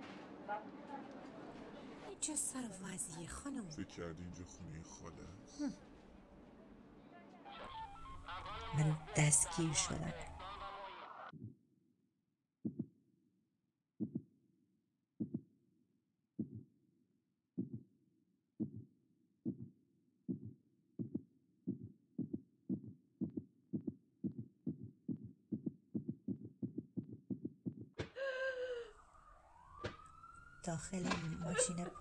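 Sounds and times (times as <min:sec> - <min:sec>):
heartbeat thumps: 0:12.6 - 0:12.9, 0:14.0 - 0:14.3, 0:15.2 - 0:15.5, 0:16.4 - 0:16.7, 0:17.6 - 0:17.9, 0:18.6 - 0:28.2.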